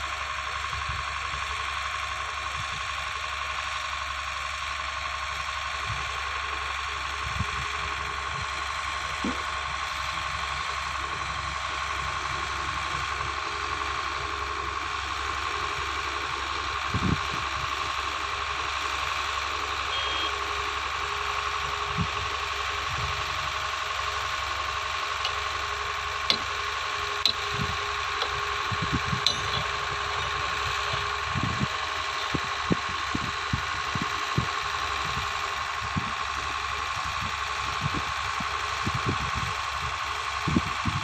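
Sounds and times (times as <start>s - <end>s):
heavy machine engine idling: 0.0s - 41.0s.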